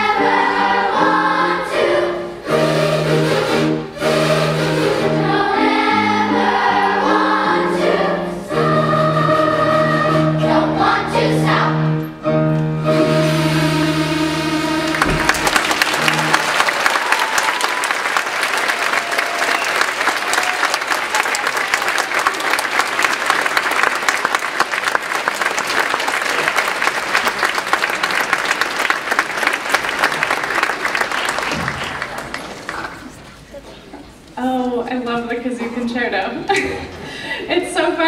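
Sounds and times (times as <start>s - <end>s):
children's choir singing: 0.0s - 18.4s
audience applause: 14.9s - 33.3s.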